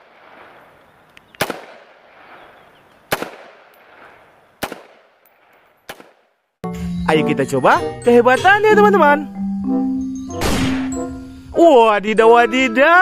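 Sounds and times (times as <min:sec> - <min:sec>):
rifle shots with echo: 0:00.0 - 0:00.8, 0:01.4 - 0:06.3, 0:10.4 - 0:11.0.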